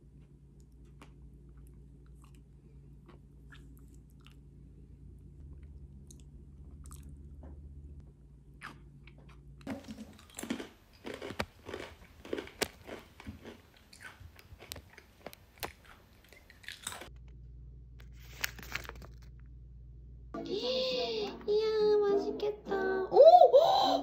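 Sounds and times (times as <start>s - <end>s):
crunchy snack being chewed: 8.6s - 17.2s.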